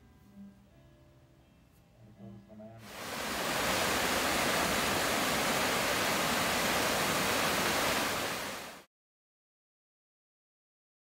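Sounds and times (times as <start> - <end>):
waterfall pouring into a pool: 2.9 - 8.9.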